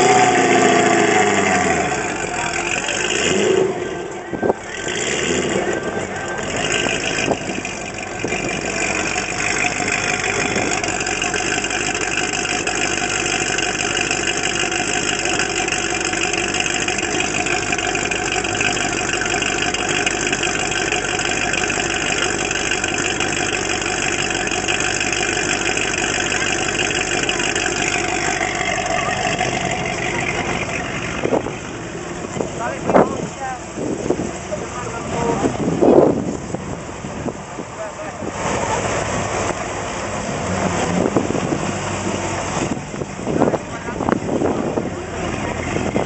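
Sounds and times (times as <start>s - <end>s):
car engine idling: 0.0s - 46.0s.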